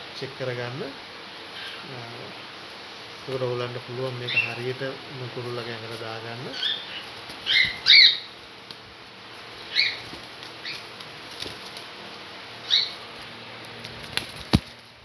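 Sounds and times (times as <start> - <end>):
bird short high calls: 6.6 - 8.3, 12.6 - 13.0
bird wings flapping: 7.0 - 7.9, 8.6 - 12.2, 13.7 - 15.0.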